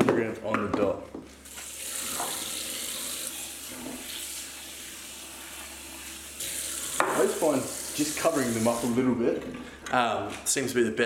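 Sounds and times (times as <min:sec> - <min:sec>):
tap water running into a bowl: 0:01.5 - 0:09.0.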